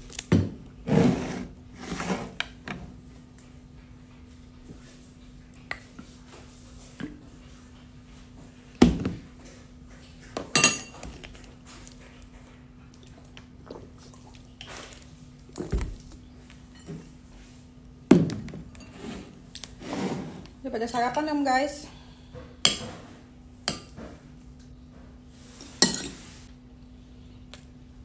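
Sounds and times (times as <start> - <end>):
dishes and cutlery clinking: 10.4 - 11.2, 25.7 - 26.3.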